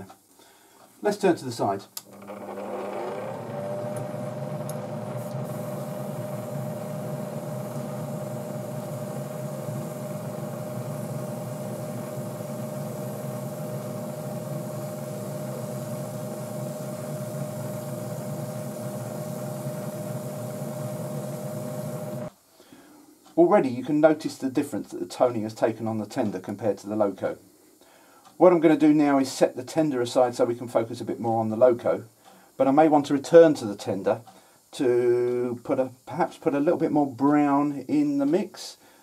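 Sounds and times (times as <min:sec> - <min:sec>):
extractor fan motor hum: 0:02.0 - 0:22.3
airbrush air hiss: 0:05.1 - 0:22.3.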